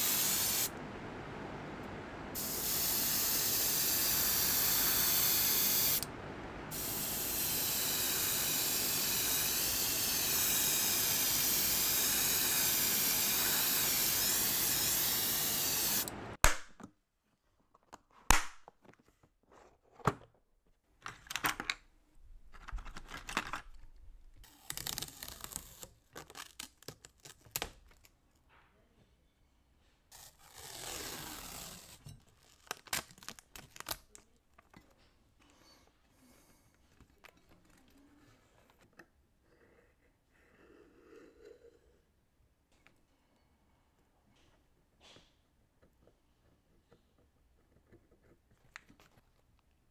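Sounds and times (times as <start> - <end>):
spray paint hissing: 0.0 - 0.7, 2.4 - 6.0, 6.7 - 16.1
plastic box and tools handled: 17.7 - 20.4, 22.4 - 24.0
masking tape being pulled: 24.4 - 28.0, 30.1 - 34.2.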